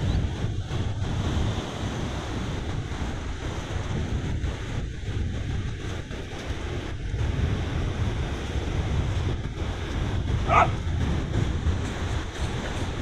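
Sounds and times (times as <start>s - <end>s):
surf: 0.0s - 13.0s
wind buffeting microphone: 0.0s - 13.0s
dog bark: 10.4s - 10.8s.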